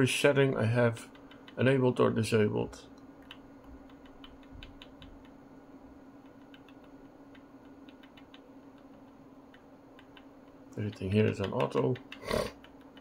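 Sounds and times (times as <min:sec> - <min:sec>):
keyboard keys clicking: 0:03.2 - 0:05.4, 0:06.2 - 0:13.0.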